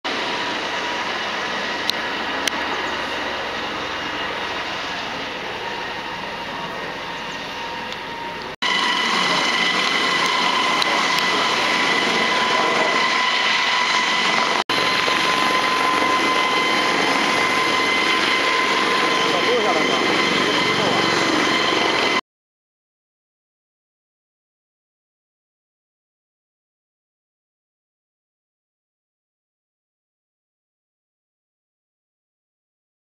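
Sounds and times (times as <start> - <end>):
helicopter flying past: 0.1 - 22.2.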